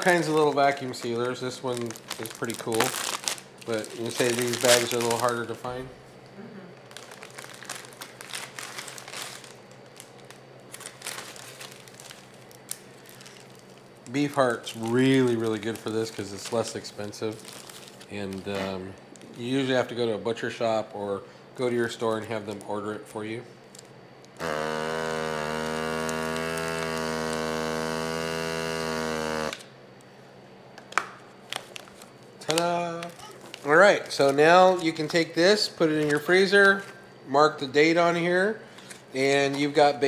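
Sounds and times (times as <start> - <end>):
paper towels rustling: 0.0 - 5.7, 6.9 - 10.1, 10.7 - 18.8
vacuum sealer pump humming: 0.0 - 39.4.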